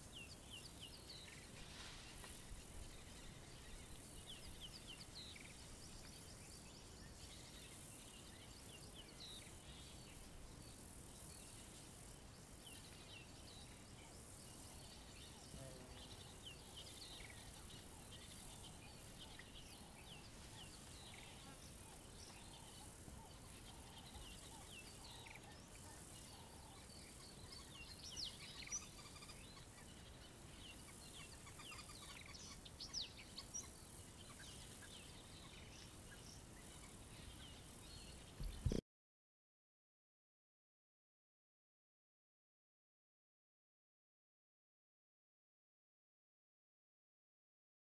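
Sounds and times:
insect hiss: 0.0s - 38.8s
bird chirps and calls: 12.7s - 38.8s.

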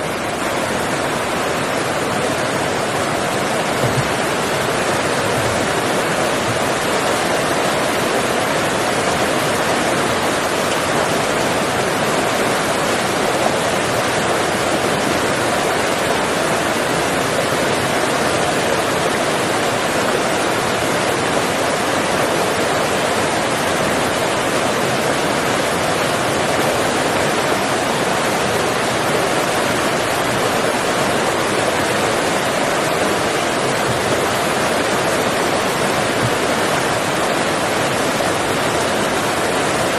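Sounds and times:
steady rushing noise: 0.0s - 17.8s.

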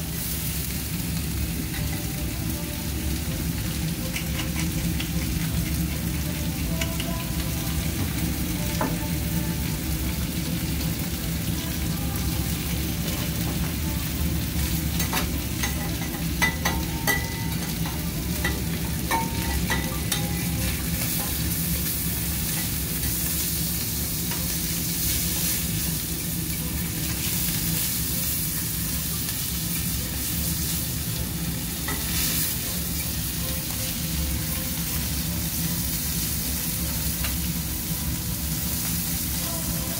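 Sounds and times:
steak sizzling on a griddle: 0.0s - 39.9s
metal utensils clinking: 15.0s - 21.4s.

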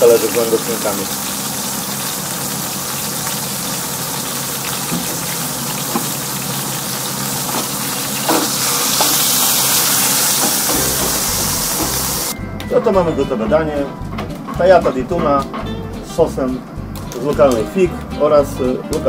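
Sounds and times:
fish sizzling in grill pan: 0.0s - 12.4s
fat popping: 10.4s - 12.3s.

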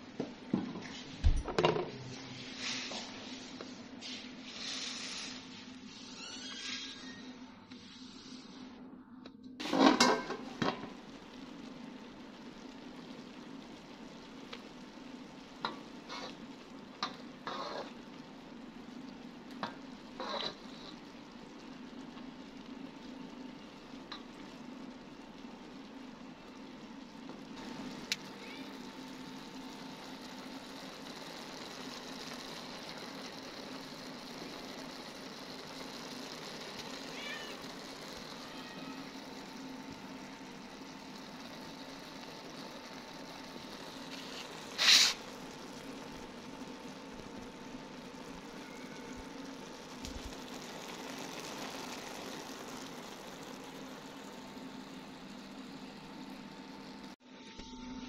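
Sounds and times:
food sizzling in a pan: 0.0s - 8.8s, 9.6s - 57.6s
metal ladle scraping pan: 9.6s - 10.8s, 15.7s - 16.4s, 17.0s - 18.0s, 19.6s - 21.0s.

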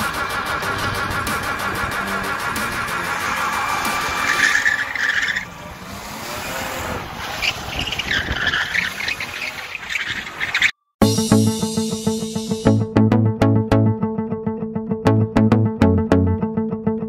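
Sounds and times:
car engine under throttle: 0.0s - 10.7s
tyres squealing: 1.2s - 10.8s.

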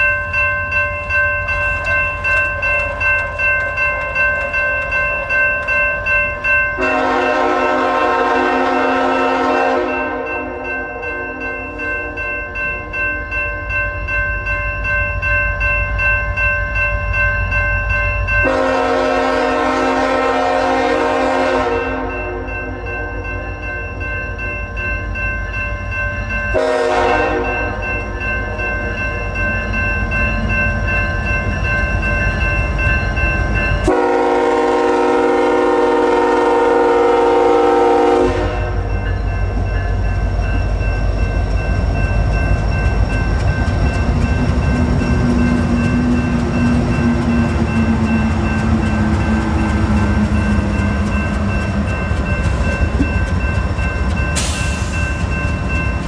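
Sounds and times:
crossing bell ringing: 0.0s - 56.0s
train wheel noise: 0.0s - 56.0s
locomotive air horn blasts: 6.8s - 10.6s, 18.4s - 22.5s, 26.6s - 27.8s, 33.9s - 38.9s
locomotive engine rumble: 26.6s - 56.0s.

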